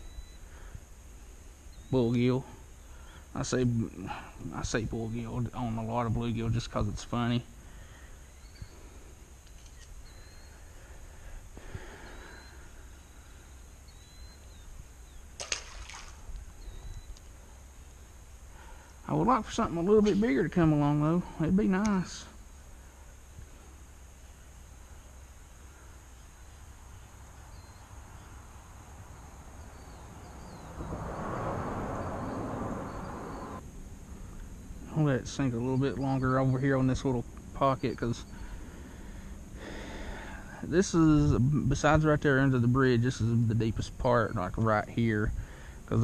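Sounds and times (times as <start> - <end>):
small bird chirping: 0.0 - 0.5, 1.6 - 2.2, 7.0 - 18.2, 26.0 - 28.5, 29.2 - 30.9, 32.2 - 33.6
vehicle tyres rushing on bridge: 30.0 - 33.6
low rumble: 30.3 - 34.8.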